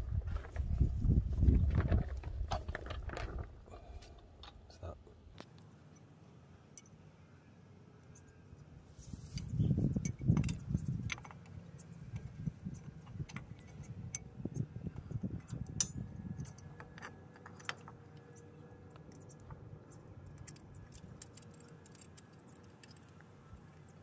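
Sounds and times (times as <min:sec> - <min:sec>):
soft rubbing and handling noise: 0:08.8 - 0:10.0
metallic clicks of brake parts: 0:15.3 - 0:23.9.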